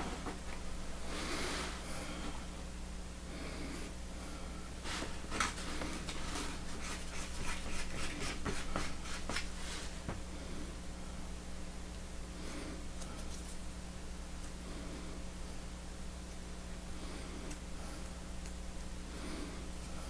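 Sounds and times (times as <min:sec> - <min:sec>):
steady low hum: 0:00.0 - 0:20.0
wooden stick scraping on cardboard: 0:04.9 - 0:09.9.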